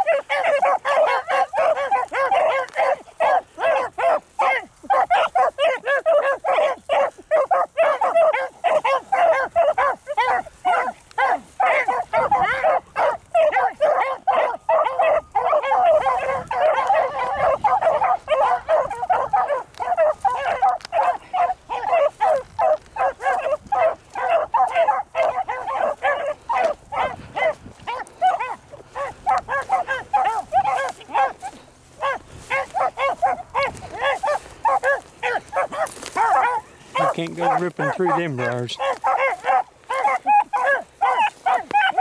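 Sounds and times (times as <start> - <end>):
pack of hounds baying: 0.0 - 42.0.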